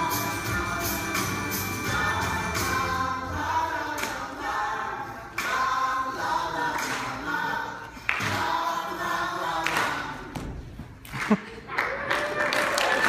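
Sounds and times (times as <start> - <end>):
group of voices singing: 0.0 - 10.6.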